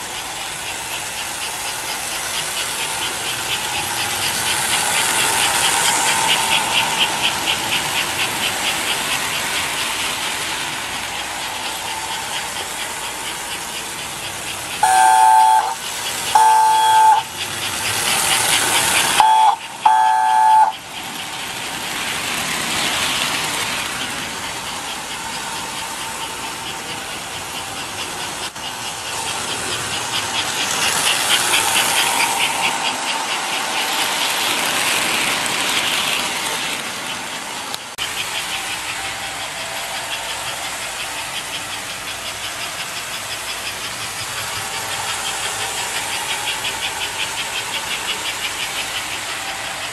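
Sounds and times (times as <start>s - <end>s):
toy train chuffing clatter: 0.0s - 49.9s
train whistle blasts: 14.8s - 17.4s, 19.0s - 20.8s.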